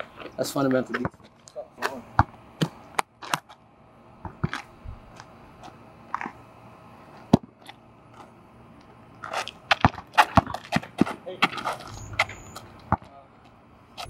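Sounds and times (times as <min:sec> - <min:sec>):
basketball bouncing on asphalt: 0:00.9 - 0:01.3, 0:02.1 - 0:03.6, 0:04.2 - 0:06.4, 0:07.3 - 0:07.8, 0:09.2 - 0:13.2.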